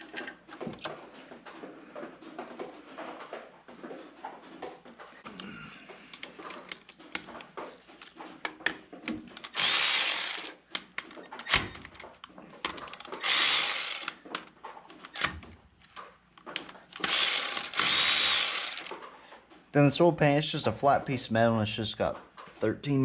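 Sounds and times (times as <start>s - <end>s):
electric ratchet running: 9.4s - 10.6s, 12.9s - 14.2s, 17.0s - 19.0s.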